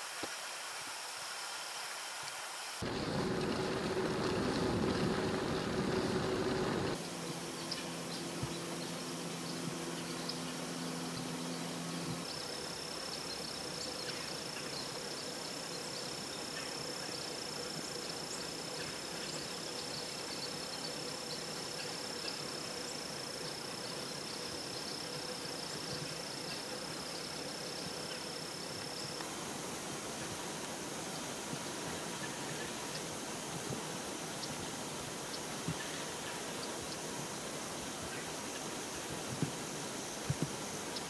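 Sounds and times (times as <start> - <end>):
steady hiss: 0.0 - 41.0
low hum: 2.8 - 12.3.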